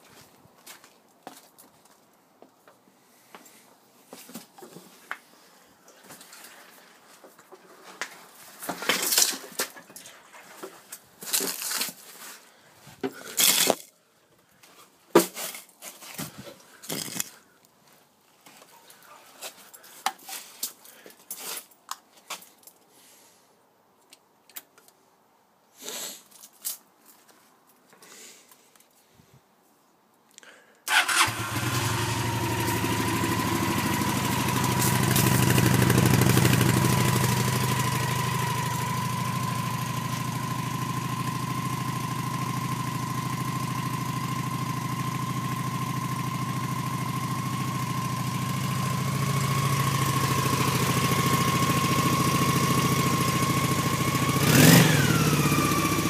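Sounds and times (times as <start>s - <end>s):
handling noise rustling and knocks: 5.9s - 13.9s, 14.7s - 22.8s.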